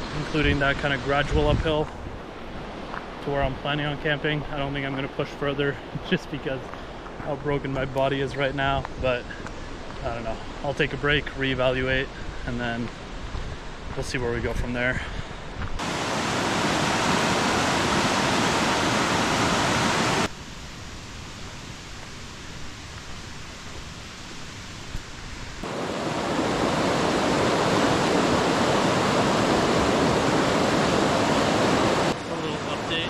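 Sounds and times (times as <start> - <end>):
river rushing over rocks: 15.8 - 20.3, 25.6 - 33.0.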